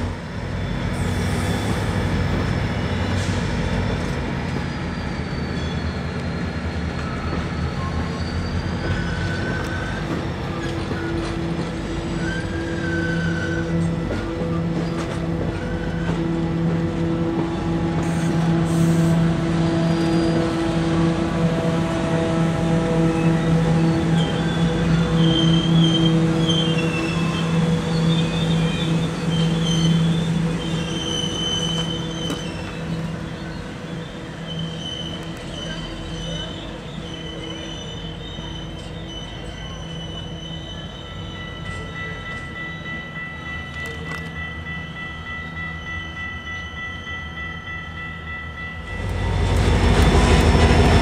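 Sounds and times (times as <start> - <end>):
train rumbling past: 0.0 - 51.0
high wheel squeals: 0.5 - 16.3, 18.0 - 20.7, 22.8 - 43.7.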